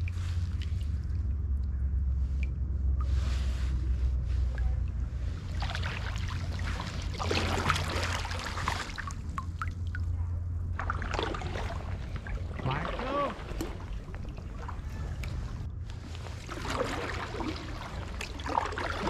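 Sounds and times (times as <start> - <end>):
steady low rumble: 0.0 - 19.0
kayak paddle splashing: 3.0 - 9.8, 10.7 - 19.0
water dripping off paddle blade: 4.8 - 10.1, 10.8 - 19.0.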